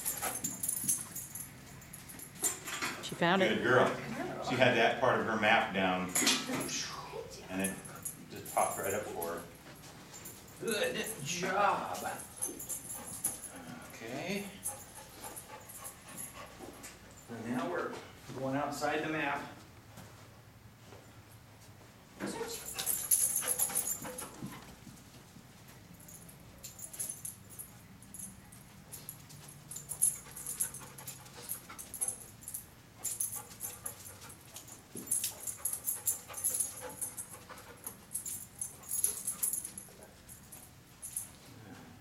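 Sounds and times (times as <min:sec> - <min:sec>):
dog sniffing and panting: 0:00.0 - 0:03.4, 0:11.2 - 0:17.3, 0:22.3 - 0:41.9.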